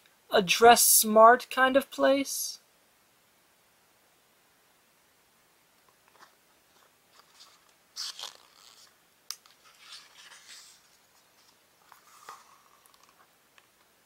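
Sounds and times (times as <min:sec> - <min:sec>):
book pages rustling: 0:05.9 - 0:13.8.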